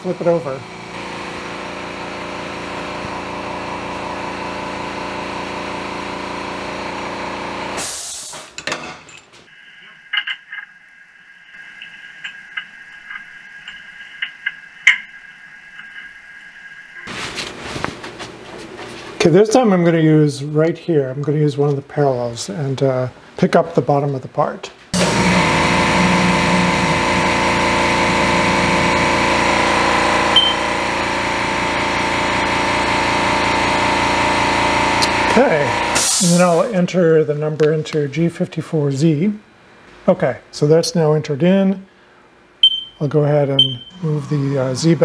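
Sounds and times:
high-pitched hum: 9.5 - 17.1, 25.0 - 36.7, 42.6 - 45.0
short high beep: 30.4 - 30.6, 42.6 - 43.0, 43.6 - 44.1.

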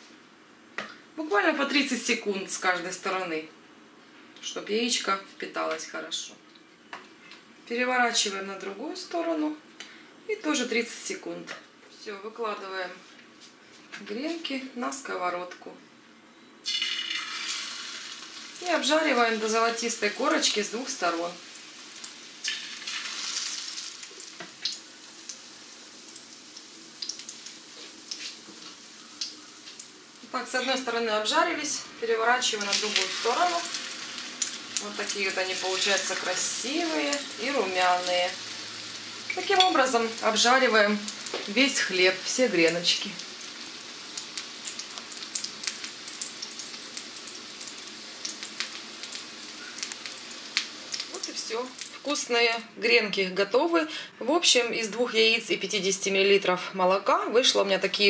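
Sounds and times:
bread sizzling in hot oil: 16.6 - 31.4, 32.0 - 52.5
oil popping and crackling: 21.6 - 30.3, 32.5 - 41.9, 42.8 - 52.2.

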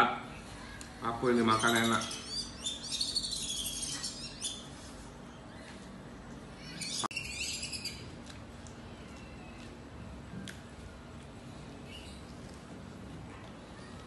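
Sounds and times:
small birds chirping: 0.4 - 9.8, 11.5 - 12.6.

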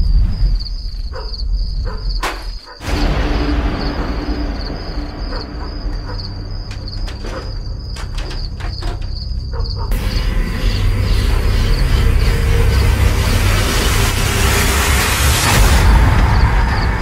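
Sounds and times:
crickets chirping: 0.0 - 17.0
low rumble: 2.8 - 17.0
sharp clicks and knocks: 5.4 - 9.8.

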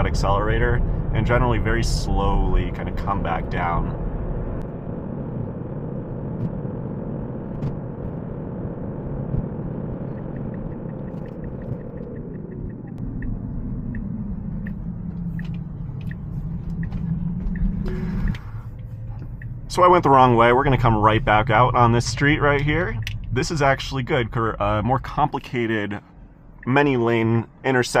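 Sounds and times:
road and tyre rumble in car: 0.0 - 28.0
turn signal ticking: 6.2 - 27.4.

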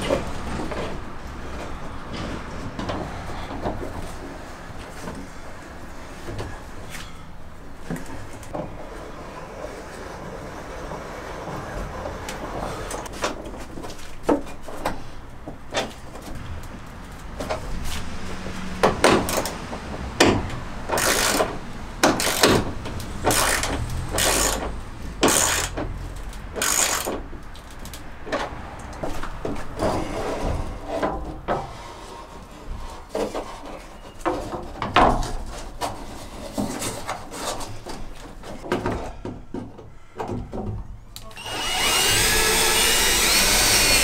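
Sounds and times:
ratchet wrench clicking: 23.3 - 24.6, 25.3 - 25.8, 26.6 - 27.1.

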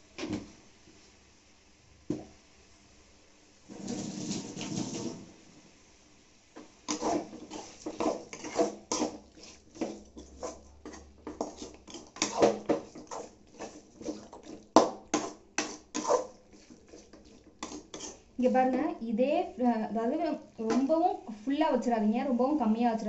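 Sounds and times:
metal spatula scraping metal pan: 6.9 - 18.3.

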